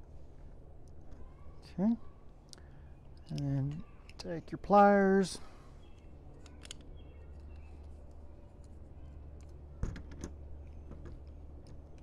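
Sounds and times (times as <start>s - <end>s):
faint low hum: 0.0s - 12.0s
small metallic clicks: 2.5s - 4.3s, 5.9s - 12.0s.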